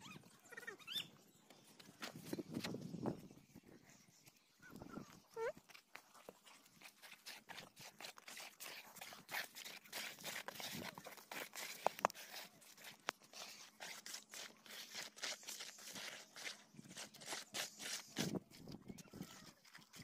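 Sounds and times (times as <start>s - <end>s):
trowel scraping grout: 6.7s - 19.9s.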